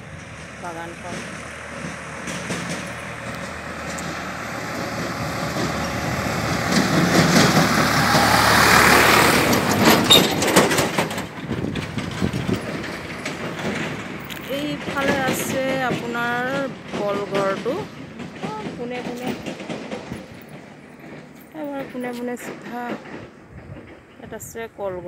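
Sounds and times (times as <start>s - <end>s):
tractor engine passing: 0.0s - 23.2s
clatter of knocks: 1.1s - 4.3s, 9.3s - 24.2s.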